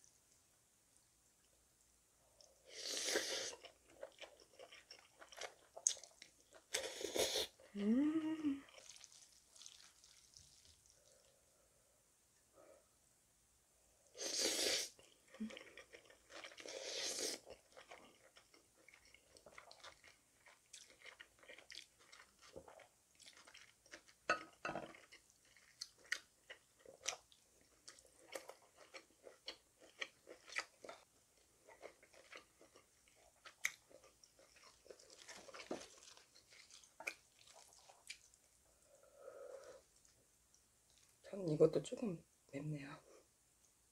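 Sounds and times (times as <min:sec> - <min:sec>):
wet chewing: 0:02.4 - 0:07.0, 0:08.7 - 0:11.3, 0:15.3 - 0:24.2, 0:24.8 - 0:38.8.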